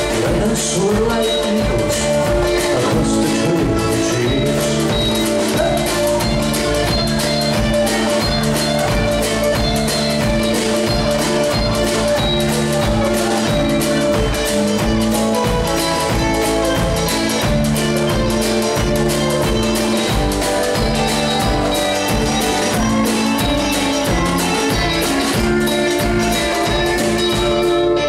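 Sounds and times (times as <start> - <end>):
live country band playing: 0.0 - 28.0.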